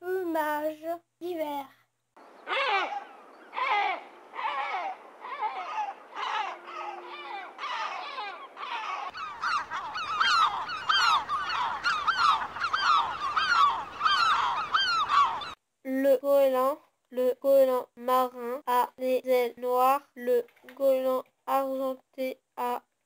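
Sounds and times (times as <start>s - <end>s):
faint low background noise: 0.0s - 23.0s
gulls calling: 2.2s - 15.6s.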